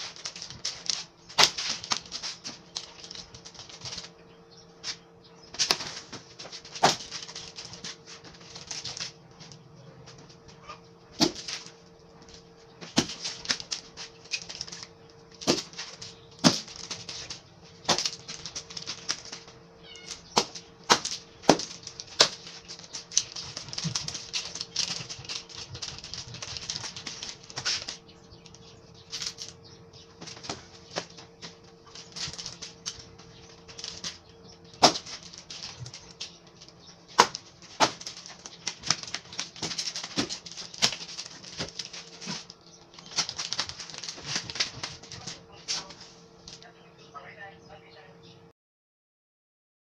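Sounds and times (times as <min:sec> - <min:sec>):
nunchaku cracking against tree: 0:00.0 - 0:04.0, 0:20.1 - 0:28.0, 0:34.8 - 0:36.3, 0:37.1 - 0:45.1.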